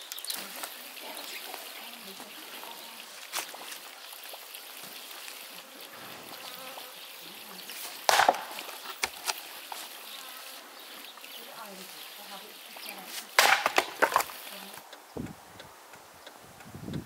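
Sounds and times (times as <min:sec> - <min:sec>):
axe splitting log: 0:08.1 - 0:09.4, 0:13.4 - 0:14.3
wood knocking: 0:13.4 - 0:14.4.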